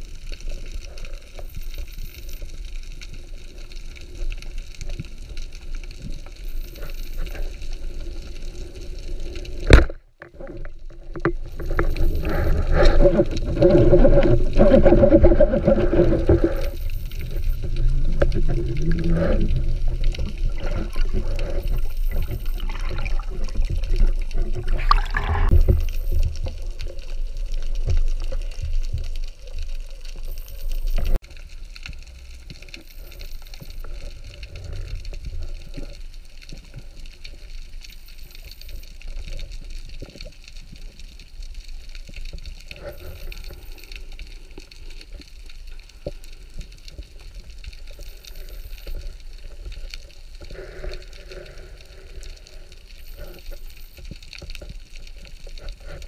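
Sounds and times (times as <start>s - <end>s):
underwater wash: 0.0s - 56.0s
water sloshing around camera housing: 17.7s - 26.0s.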